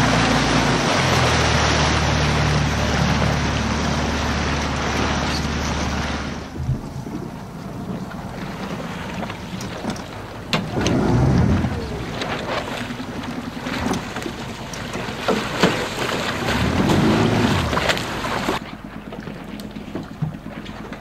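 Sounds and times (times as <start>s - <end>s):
water rushing and splashing: 0.0s - 21.0s
wind buffeting the microphone: 6.5s - 13.3s.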